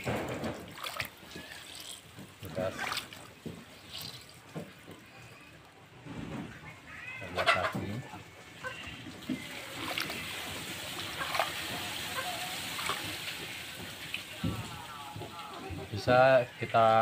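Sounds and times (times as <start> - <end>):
water trickling and splashing: 0.0 - 5.8, 7.6 - 16.8
chicken call: 11.1 - 13.0.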